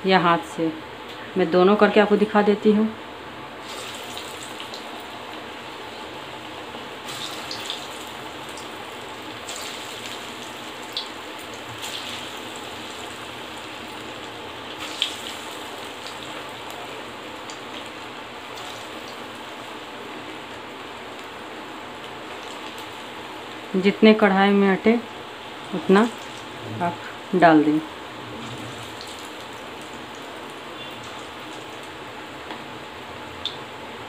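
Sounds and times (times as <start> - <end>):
batter sizzling in hot oil: 3.6 - 27.4, 28.0 - 33.6
oil crackles and pops: 7.0 - 21.4, 22.0 - 23.6.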